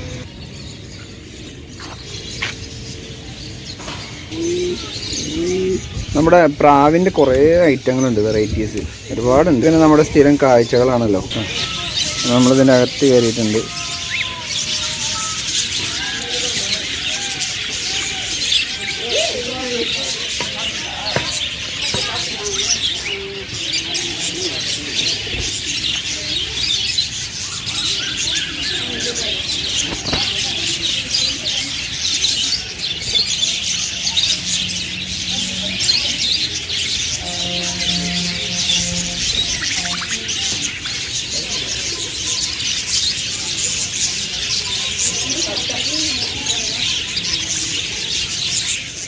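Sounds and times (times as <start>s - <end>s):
small birds chirping: 0.0s - 49.0s
pigeons cooing: 1.2s - 6.6s.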